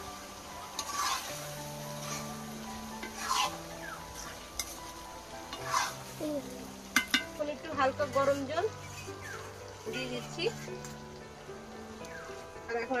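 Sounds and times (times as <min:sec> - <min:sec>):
pan sizzling: 0:00.0 - 0:13.0
metal ladle scraping a pan: 0:00.6 - 0:06.2, 0:06.9 - 0:07.4, 0:08.2 - 0:11.0.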